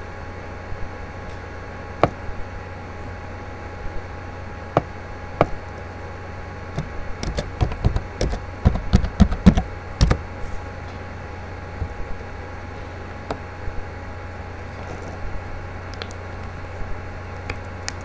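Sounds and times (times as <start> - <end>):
low electrical hum: 0.0 - 18.0
typing on laptop keyboard: 6.8 - 10.3.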